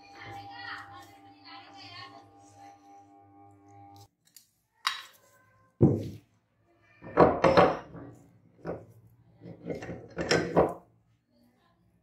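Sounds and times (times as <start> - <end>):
metal knocking and scraping: 7.0 - 10.8.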